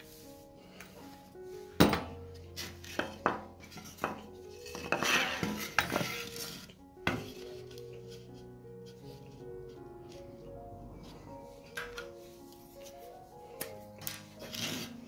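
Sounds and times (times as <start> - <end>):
soft background music: 0.0 - 15.0
knocks on metal workbench: 1.8 - 2.2
wood scraping on metal: 2.6 - 7.5, 14.4 - 15.0.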